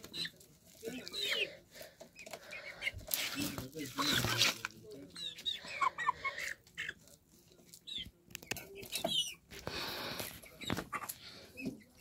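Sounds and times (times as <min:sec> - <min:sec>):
chicks cheeping: 0:00.0 - 0:12.0.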